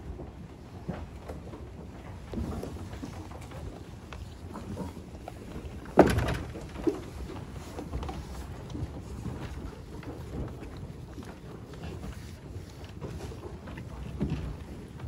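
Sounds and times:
sheep chewing hay: 6.6 - 15.0.

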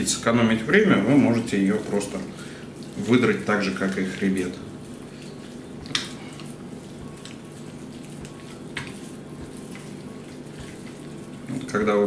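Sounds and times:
steady low hum: 0.0 - 12.0
raw chicken squishing and tearing: 1.0 - 12.0.

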